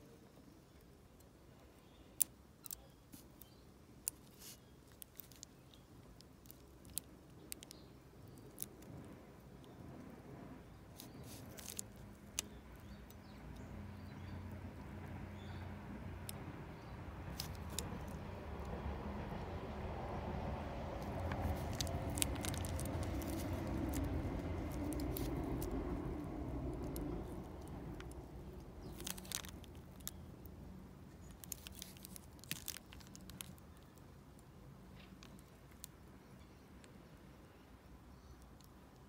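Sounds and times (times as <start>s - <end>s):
low rumble: 13.3s - 30.1s.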